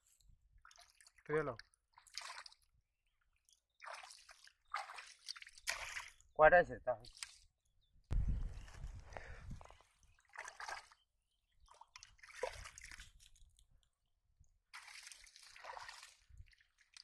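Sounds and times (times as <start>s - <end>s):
hands splashing in muddy water: 1.9s - 2.7s, 3.4s - 6.3s, 8.6s - 11.0s, 11.6s - 13.8s, 14.7s - 17.0s.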